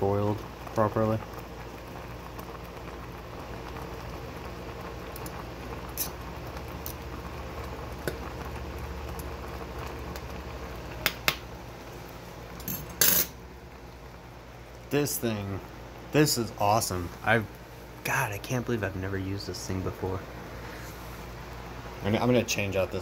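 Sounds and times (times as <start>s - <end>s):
water bubbling in pot: 0.0s - 12.7s
gas burner rush: 0.0s - 23.0s.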